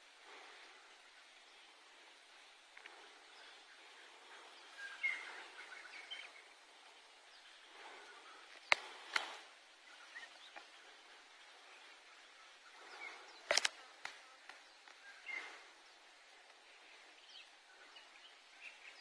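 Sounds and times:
steady outdoor hiss: 0.0s - 19.0s
bird chirps: 2.8s - 13.7s
sharp clicks: 8.6s - 9.4s, 13.4s - 15.0s.

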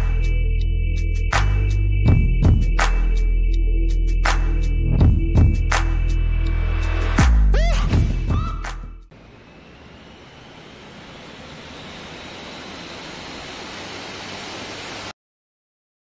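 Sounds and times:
rising whistle: 7.6s - 15.1s
gliding electronic effect tones: 9.1s - 15.1s.

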